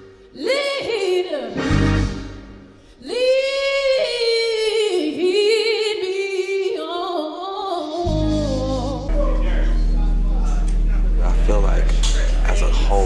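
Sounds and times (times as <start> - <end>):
woman singing a hymn: 0.3 - 1.6, 3.0 - 9.3.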